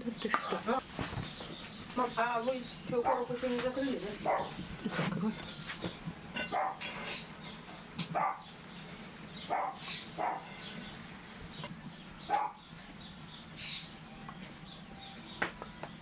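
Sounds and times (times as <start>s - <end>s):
dog barking: 3.0s - 3.4s, 4.2s - 4.6s, 6.5s - 6.8s, 8.1s - 8.4s, 9.5s - 10.5s, 12.3s - 12.6s.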